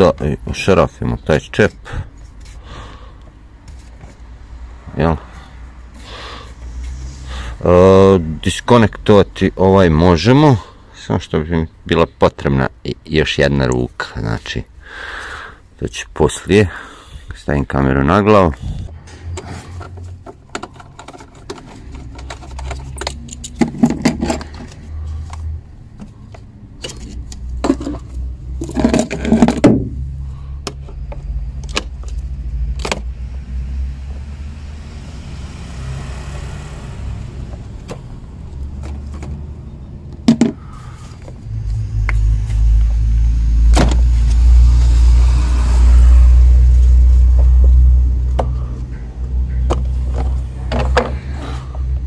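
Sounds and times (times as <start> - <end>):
plastic parts clicking and knocking: 19.4 - 30.0, 30.6 - 33.1, 40.1 - 40.6, 49.6 - 51.5
loud low rumble: 40.6 - 52.0.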